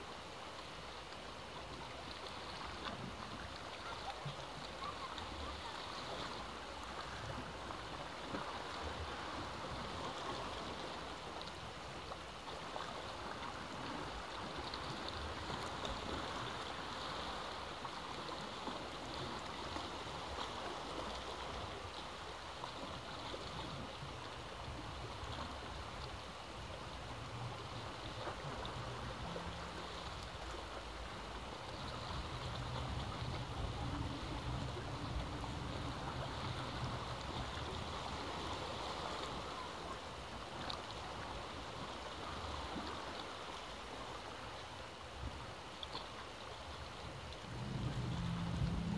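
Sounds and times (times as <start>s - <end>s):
sea waves washing against rocks: 1.7s - 48.9s
low rumble: 47.2s - 48.9s.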